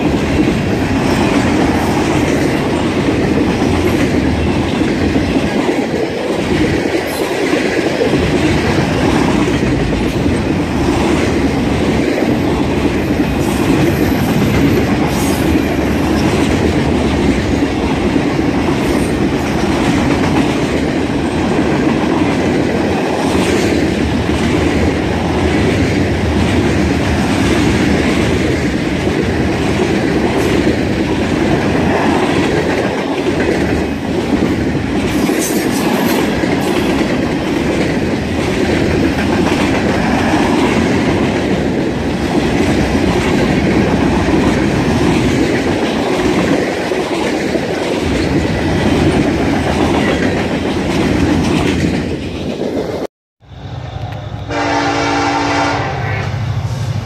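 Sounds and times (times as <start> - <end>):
freight train rumble and clatter: 0.0 - 57.0
locomotive air horn blasts: 53.9 - 56.8.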